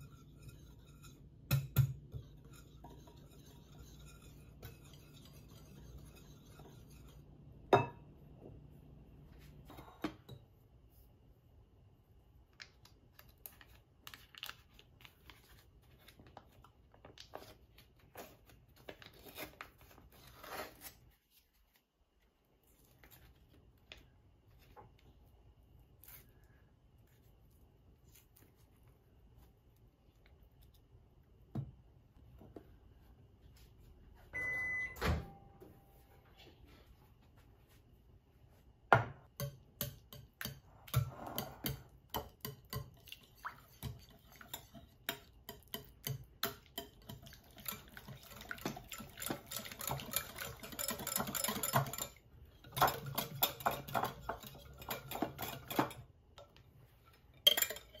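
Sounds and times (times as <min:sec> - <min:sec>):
whisk scraping glass bowl: 0:00.0 - 0:07.7, 0:40.9 - 0:56.0
short electronic beep: 0:34.4 - 0:35.6.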